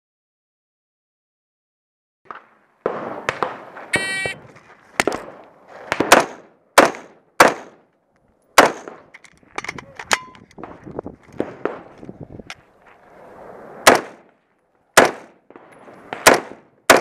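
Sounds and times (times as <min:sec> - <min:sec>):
rifle shots: 0:02.3 - 0:04.4, 0:05.0 - 0:07.8, 0:08.6 - 0:09.1, 0:13.8 - 0:14.3, 0:15.0 - 0:17.0
shot timer beep: 0:04.0 - 0:04.4.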